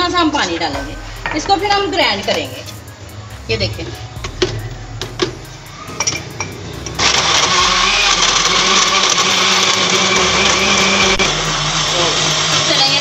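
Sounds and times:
blender motor running: 6.8 - 13.0.

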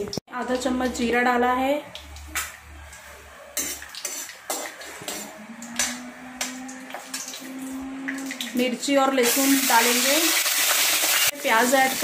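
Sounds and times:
metal spoon scraping a pan: 2.9 - 8.6.

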